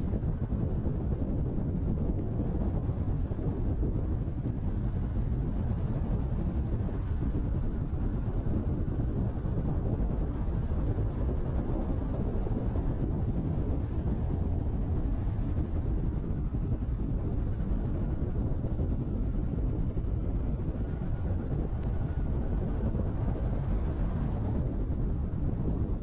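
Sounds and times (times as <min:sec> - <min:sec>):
wind on microphone: 0:00.0 - 0:26.0.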